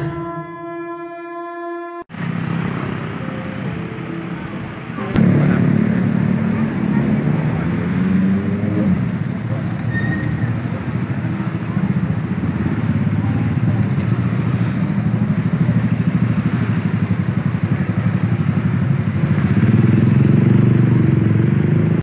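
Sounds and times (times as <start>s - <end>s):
car engines: 2.1s - 22.0s
motorcycle engines: 2.1s - 22.0s.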